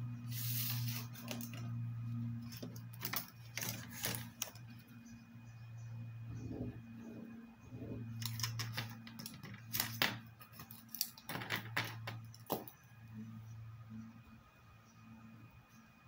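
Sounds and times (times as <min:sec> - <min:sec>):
low hum: 0:00.0 - 0:11.1
pencils and ruler clicking on desk: 0:00.4 - 0:01.8, 0:02.4 - 0:04.8, 0:08.2 - 0:12.8.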